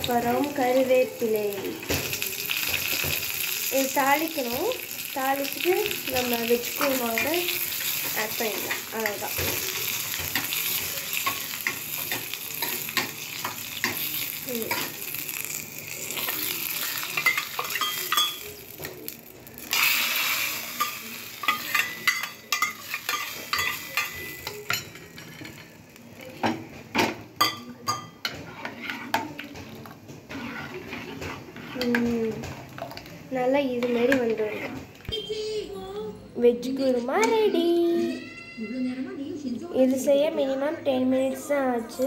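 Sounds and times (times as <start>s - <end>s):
spices sizzling in hot oil: 0.0s - 34.7s
ladle stirring and scraping: 5.9s - 19.0s, 19.7s - 25.8s, 27.4s - 35.1s.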